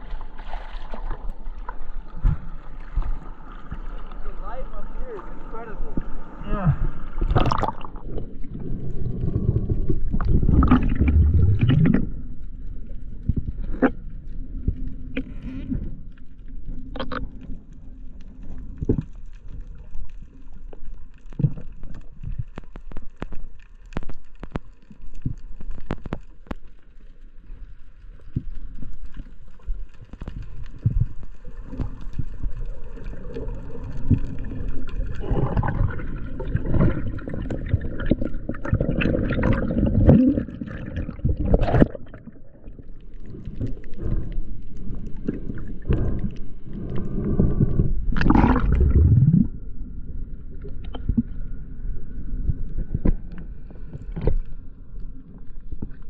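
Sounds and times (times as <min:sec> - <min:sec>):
low wash of water: 0:00.0 - 0:18.4, 0:30.9 - 0:55.9
underwater rush of bubbles: 0:00.0 - 0:22.6, 0:27.5 - 0:54.7
sharp underwater clicks: 0:21.4 - 0:27.0.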